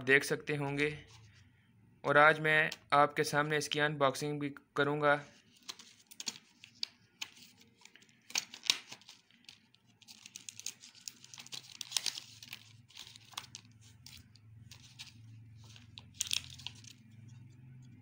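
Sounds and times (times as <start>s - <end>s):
plastic packaging crinkling: 5.4s - 17.5s.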